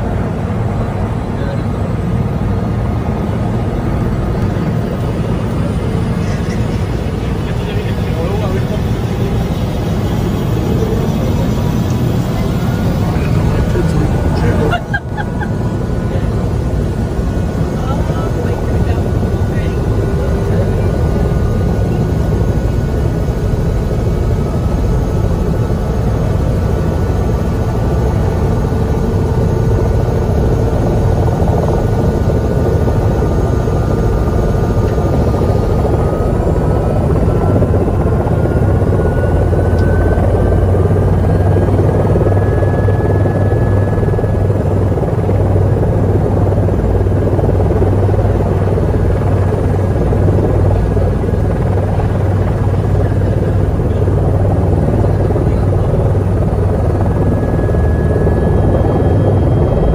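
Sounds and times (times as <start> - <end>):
helicopter engine and rotor: 0.0 - 59.9.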